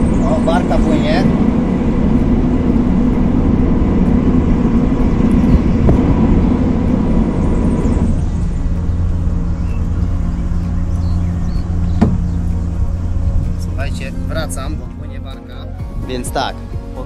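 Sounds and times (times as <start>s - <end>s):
boat motors droning: 0.0s - 17.0s.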